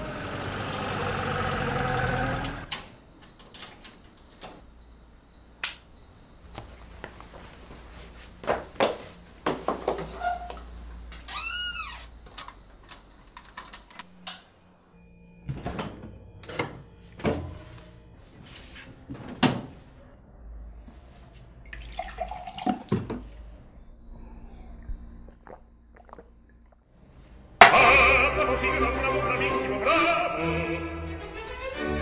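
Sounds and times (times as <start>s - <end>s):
water pouring: 21.7s - 23.2s
person drinking: 24.4s - 26.8s
loud opera music: 27.6s - 32.0s.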